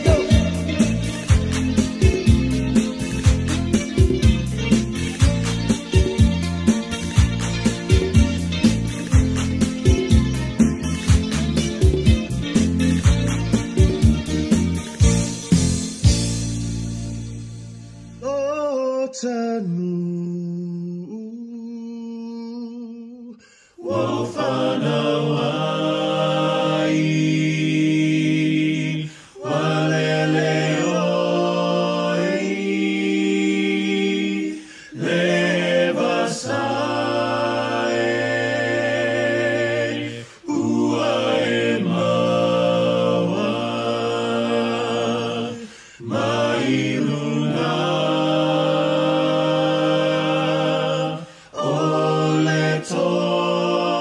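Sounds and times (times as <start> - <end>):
a cappella voices singing: 0.0 - 10.2, 18.2 - 54.0.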